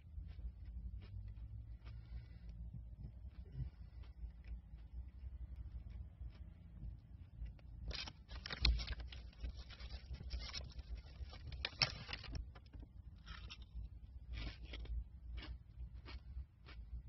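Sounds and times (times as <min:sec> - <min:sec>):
low rumble: 0:00.0 - 0:08.3
rustling and scraping: 0:00.0 - 0:14.9.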